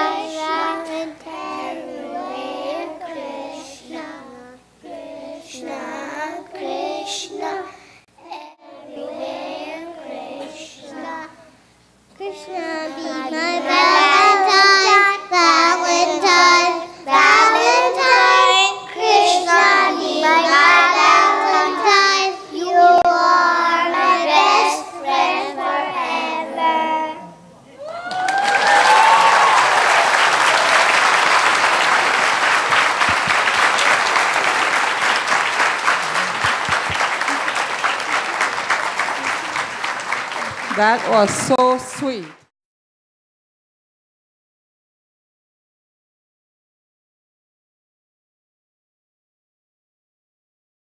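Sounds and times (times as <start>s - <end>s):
young children singing: 0.0s - 11.6s, 12.2s - 27.4s
audience applause: 27.8s - 42.5s.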